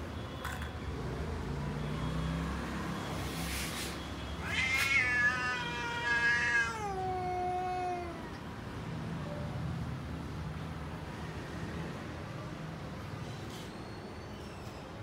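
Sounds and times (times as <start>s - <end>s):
cat yowling: 4.4s - 8.4s.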